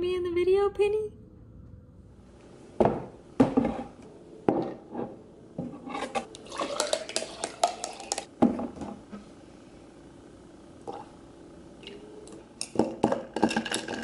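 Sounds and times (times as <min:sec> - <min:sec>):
coffee pouring: 0:06.0 - 0:08.3, 0:12.7 - 0:14.0
ice cubes clinking against glass: 0:06.5 - 0:08.3.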